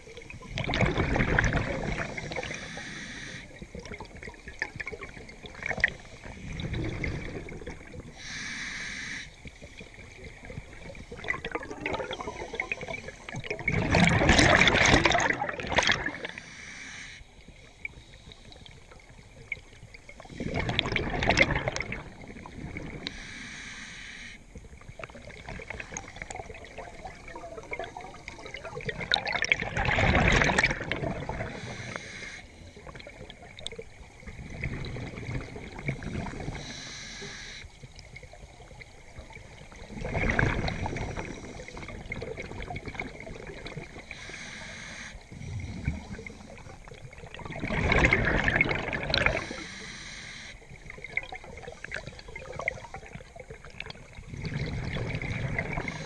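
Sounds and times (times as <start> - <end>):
exhaled bubbles gurgling: 0.0 - 56.0
regulator hiss on inhale: 2.0 - 3.6, 8.1 - 9.7, 16.2 - 19.1, 23.0 - 24.6, 31.4 - 33.2, 36.4 - 37.8, 40.8 - 42.2, 44.0 - 47.1, 49.3 - 50.7, 55.7 - 56.0.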